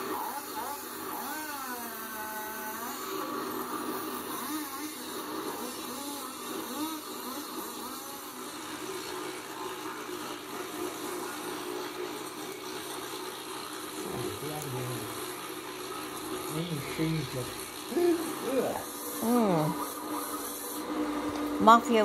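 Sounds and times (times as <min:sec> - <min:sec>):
indistinct voice-like sounds: 0:17.9 - 0:19.8.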